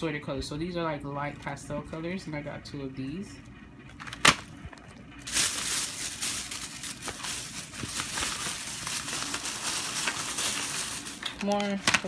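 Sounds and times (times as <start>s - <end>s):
packaging rustling and crinkling: 4.0s - 12.0s.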